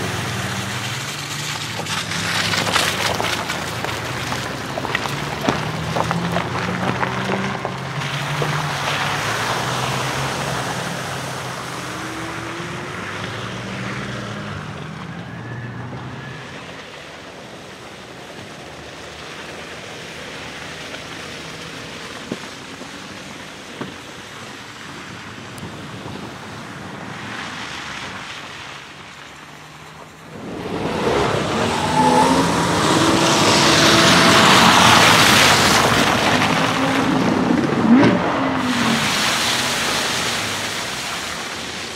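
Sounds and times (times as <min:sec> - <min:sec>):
tyres on gravel: 0:00.0 - 0:13.8, 0:27.3 - 0:41.9
vehicle engines at low speed: 0:00.0 - 0:41.9
loud even noise: 0:30.2 - 0:40.6.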